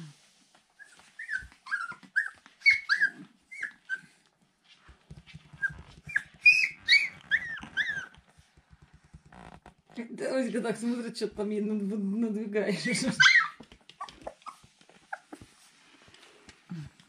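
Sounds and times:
puppy squeaking: 0:00.8 - 0:04.1, 0:05.4 - 0:08.3, 0:13.0 - 0:15.5.

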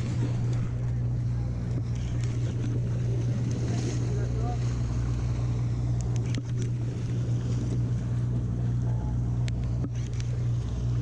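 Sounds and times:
boat engine humming: 0:00.0 - 0:11.0
faint clicks: 0:06.0 - 0:06.8, 0:09.4 - 0:10.4.

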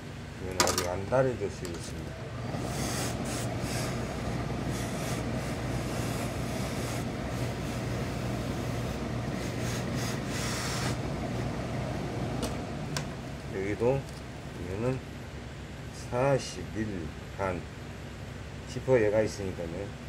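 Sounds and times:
low machine hum: 0:00.0 - 0:20.0
steam iron hissing: 0:02.6 - 0:11.2.

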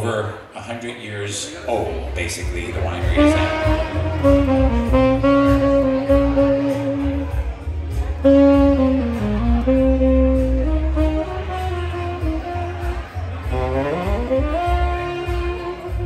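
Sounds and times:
bass accompaniment: 0:01.6 - 0:16.0
saxophone melody: 0:02.9 - 0:16.0.

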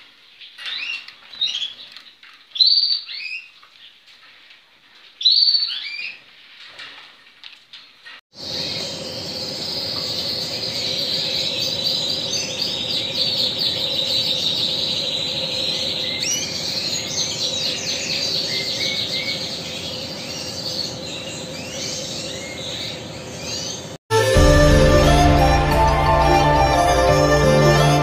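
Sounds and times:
canary singing trills: 0:08.4 - 0:24.0.

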